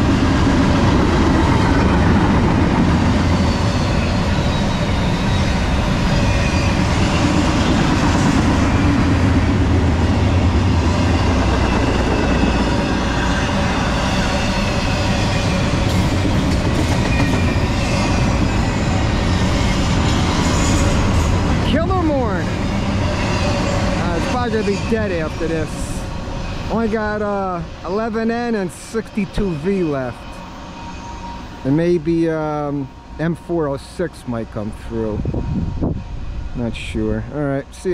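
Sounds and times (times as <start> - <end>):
train wheels rumbling and rattling: 0.0 - 37.9
faint high wheel squeals: 3.2 - 7.7, 29.4 - 31.9.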